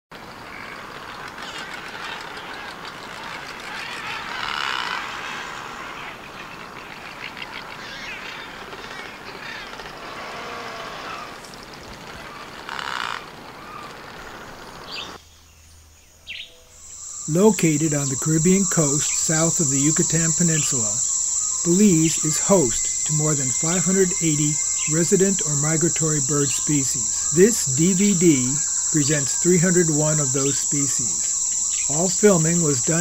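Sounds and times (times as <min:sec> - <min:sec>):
many birds calling: 0:00.4 - 0:15.2, 0:16.3 - 0:33.0
steady hiss: 0:16.8 - 0:33.0.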